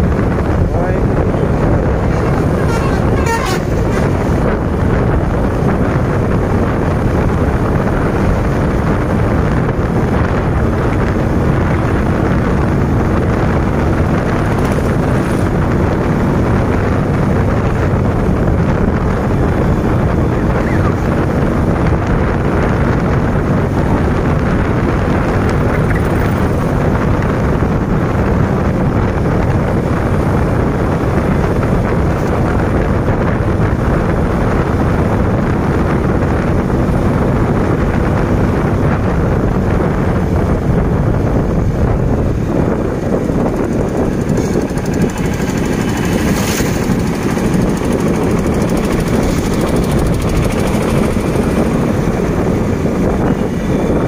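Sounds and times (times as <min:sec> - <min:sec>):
motorcycle engine: 0:00.0 - 0:54.0
road noise: 0:00.0 - 0:54.0
wind on microphone: 0:00.0 - 0:54.0.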